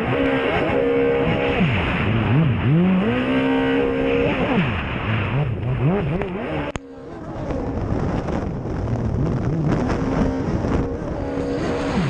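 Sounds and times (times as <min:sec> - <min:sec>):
jet ski engine revving: 0:00.0 - 0:12.0
wind buffeting microphone: 0:05.4 - 0:12.0.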